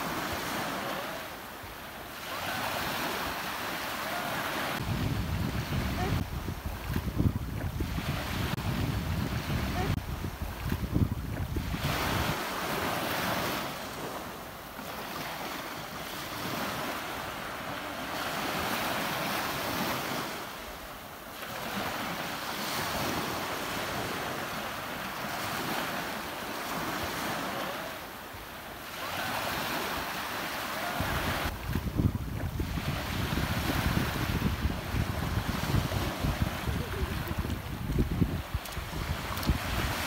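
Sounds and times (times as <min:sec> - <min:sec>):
ocean surf rushing: 0:00.0 - 0:40.0
wind rumble on microphone: 0:04.6 - 0:12.4, 0:31.0 - 0:40.0.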